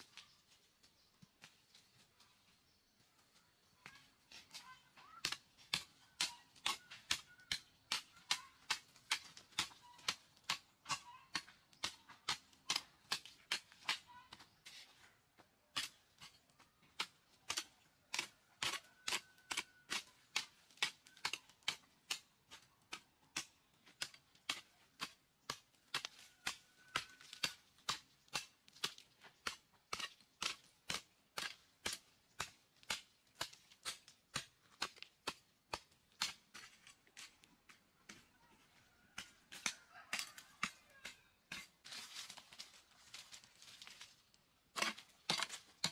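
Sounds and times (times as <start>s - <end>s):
hoe chopping into stony dirt: 44.7s - 45.9s.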